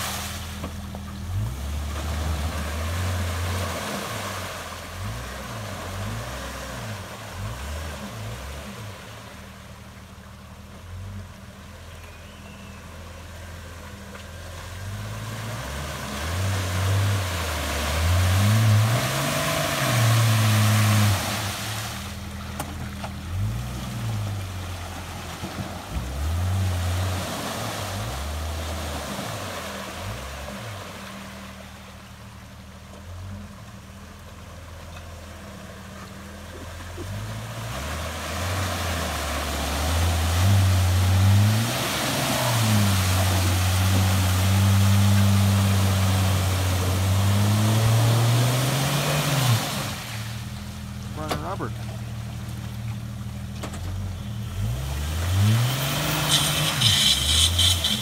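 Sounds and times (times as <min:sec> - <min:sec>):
tires churning through mud: 0:00.0 - 0:58.0
engine revving: 0:14.8 - 0:22.2, 0:36.5 - 0:52.0, 0:53.6 - 0:58.0.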